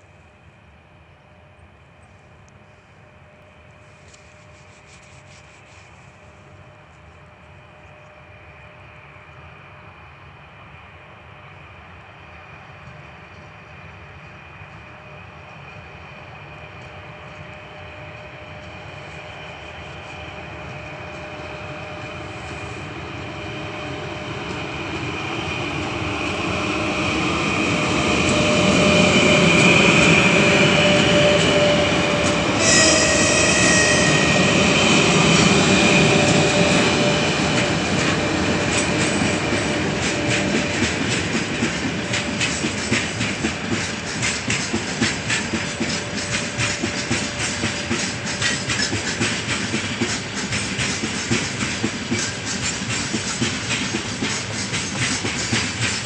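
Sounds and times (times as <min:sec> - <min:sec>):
train wheels rumbling on rail: 0:00.0 - 0:56.0
high-pitched whistle: 0:32.6 - 0:34.6.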